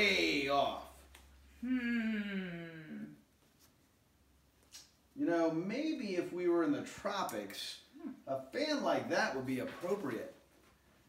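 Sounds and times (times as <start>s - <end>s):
person's wordless vocal sound: 1.6s - 3.2s.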